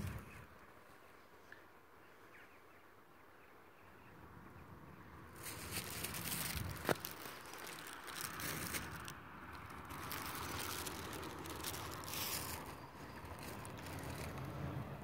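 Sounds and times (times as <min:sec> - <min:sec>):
plastic bag crinkling: 0:05.4 - 0:14.6.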